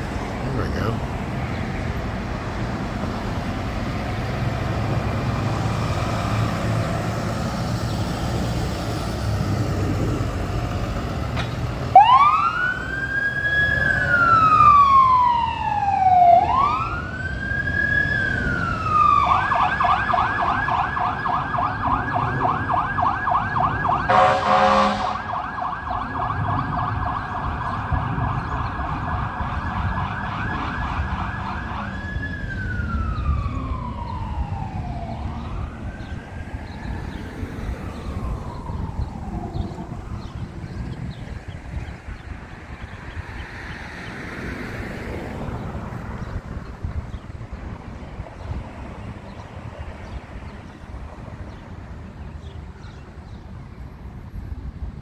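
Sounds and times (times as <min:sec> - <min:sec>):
engine low rumble: 0:00.0 - 0:43.0
siren wailing and yelping: 0:11.9 - 0:40.7
horn blast: 0:24.1 - 0:25.3.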